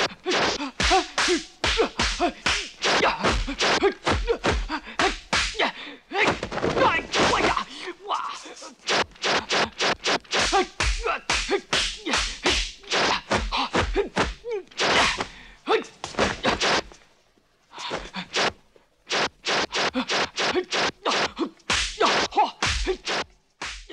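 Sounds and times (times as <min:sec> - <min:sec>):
punch and kick whacks: 0:00.0 - 0:05.6, 0:06.3 - 0:07.6, 0:08.9 - 0:15.3, 0:16.0 - 0:17.0, 0:18.4 - 0:23.9
shouts and grunts: 0:00.2 - 0:08.8, 0:10.4 - 0:16.6, 0:20.0 - 0:23.2.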